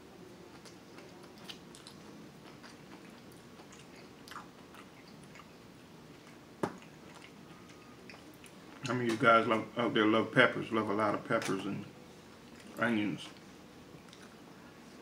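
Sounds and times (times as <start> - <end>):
man chewing food: 0.4 - 9.0, 12.1 - 15.0.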